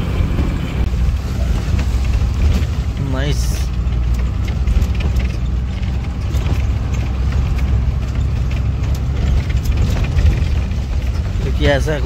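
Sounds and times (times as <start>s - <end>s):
bus engine drone: 0.0s - 12.0s
knocks and rattles: 0.0s - 12.0s.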